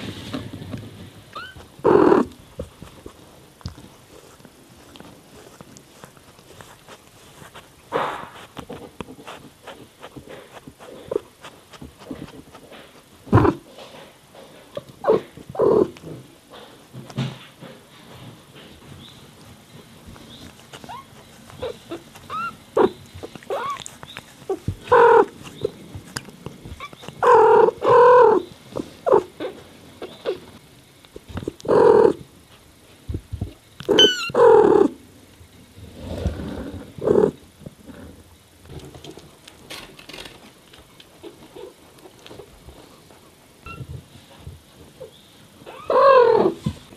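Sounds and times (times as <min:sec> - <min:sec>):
high wavering kitten squeak: 0:01.3 - 0:01.6, 0:20.8 - 0:22.9, 0:23.5 - 0:23.9, 0:33.9 - 0:34.5, 0:43.6 - 0:43.9
cat chirping meows and trills: 0:01.3 - 0:01.7, 0:20.8 - 0:25.7, 0:33.9 - 0:34.7, 0:43.6 - 0:43.9.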